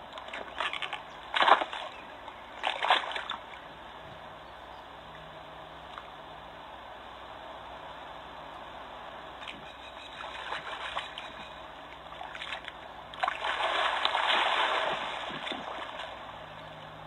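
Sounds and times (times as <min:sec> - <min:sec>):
water splashing and sloshing: 0:00.0 - 0:04.0, 0:09.4 - 0:17.0.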